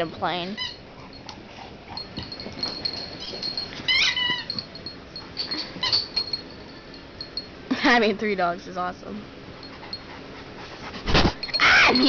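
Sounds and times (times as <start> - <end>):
dogs scuffling: 0.5 - 6.4
dog whining: 1.9 - 4.8, 11.1 - 12.0.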